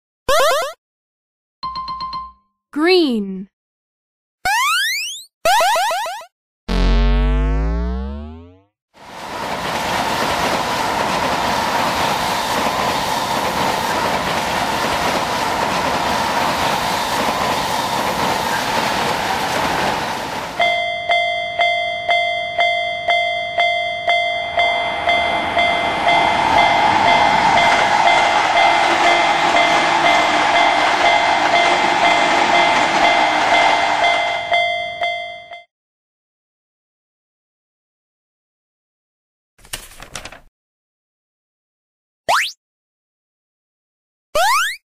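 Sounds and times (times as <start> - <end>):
train rushing past: 9.0 - 20.7, 24.6 - 34.5
level crossing warning bell: 20.6 - 35.7.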